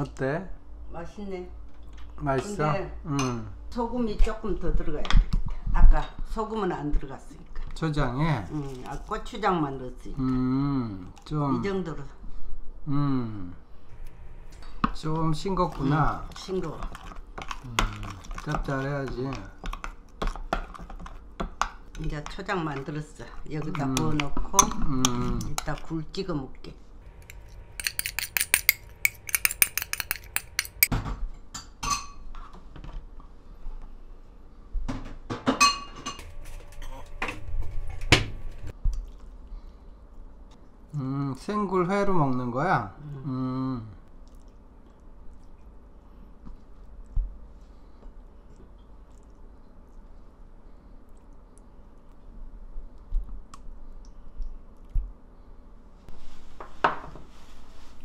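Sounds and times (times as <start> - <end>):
spoon clinking ceramic bowl: 27.2 - 30.9.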